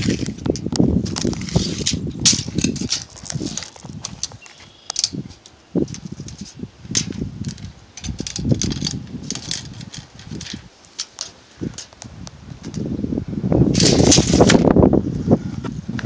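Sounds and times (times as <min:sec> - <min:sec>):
camera handling rustling: 0:00.0 - 0:12.8
sharp clicks: 0:00.0 - 0:12.8
wind noise on microphone: 0:00.0 - 0:16.0.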